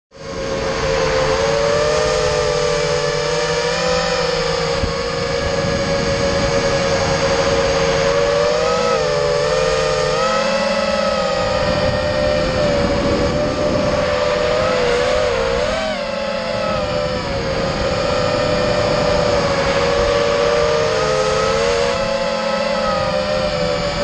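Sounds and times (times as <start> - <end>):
quadcopter motors whining: 0.1 - 24.0.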